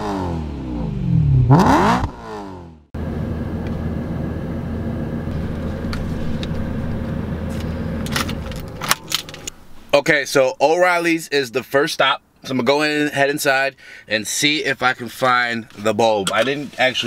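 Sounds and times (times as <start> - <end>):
car engine revving: 0.0 - 9.5
car engine idling: 3.0 - 9.9.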